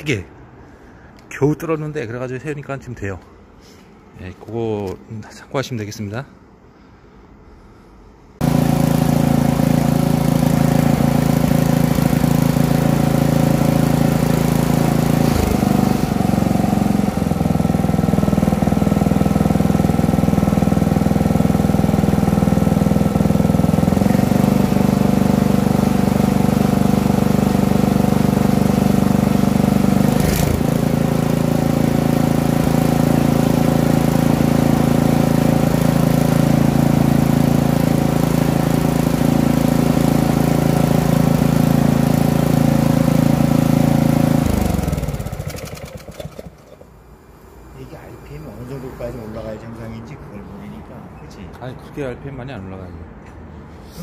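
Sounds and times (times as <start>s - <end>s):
small gasoline engine running: 8.4s - 47.0s.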